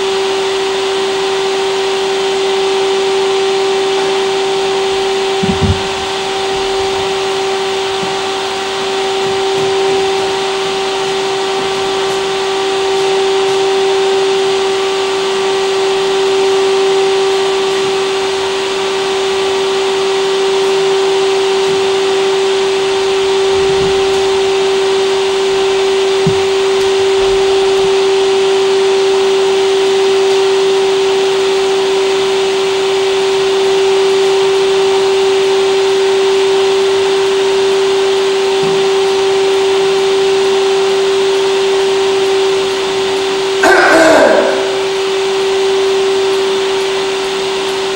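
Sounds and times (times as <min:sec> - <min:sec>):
electric hum with hiss: 0:04.6 - 0:15.5, 0:42.9 - 0:46.9
soft low thumps: 0:05.4 - 0:07.2, 0:26.2 - 0:27.5.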